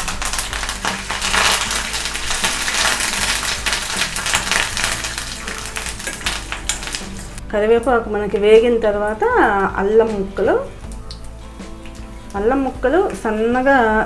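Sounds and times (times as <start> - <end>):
leaves and peanuts crackling in oil: 0.0 - 7.4.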